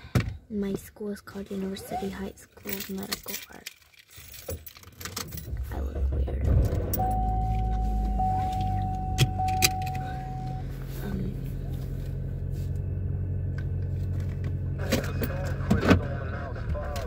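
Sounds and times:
car engine hum from cabin: 5.4s - 17.0s
steady high tone: 6.9s - 11.7s.

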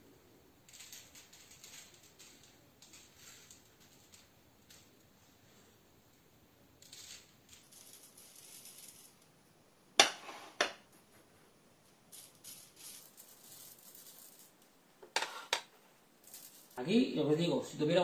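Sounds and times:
nut granules rustling and pattering: 12.1s - 14.8s, 16.2s - 17.0s.

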